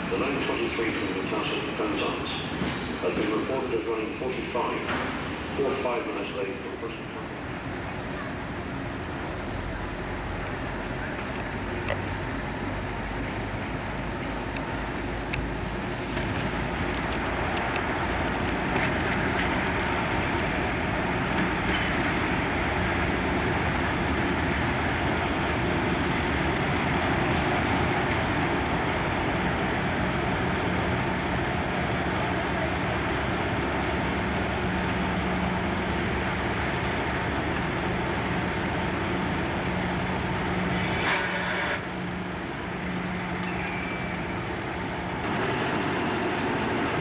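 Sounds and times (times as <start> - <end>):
diesel locomotive engine running: 0.0 - 47.0.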